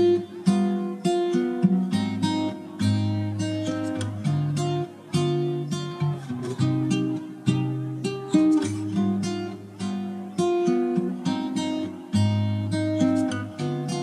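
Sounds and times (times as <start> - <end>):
acoustic guitar strummed and plucked: 0.0 - 14.0.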